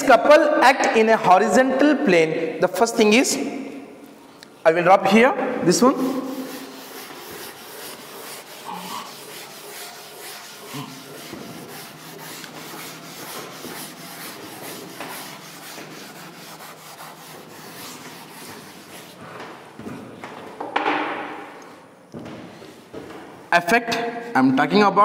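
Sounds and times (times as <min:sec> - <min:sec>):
duster rubbing a blackboard: 0:05.8 - 0:19.8.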